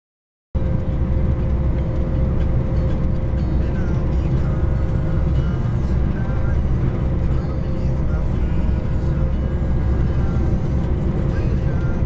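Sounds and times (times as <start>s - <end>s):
car road and engine rumble: 0.6s - 12.0s
constant hum: 0.6s - 12.0s.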